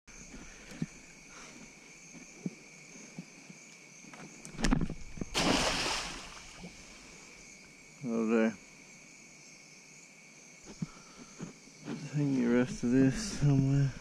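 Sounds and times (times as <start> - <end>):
insects shrilling: 5.1 - 8.6
crab pot splashing into water: 5.3 - 7.0.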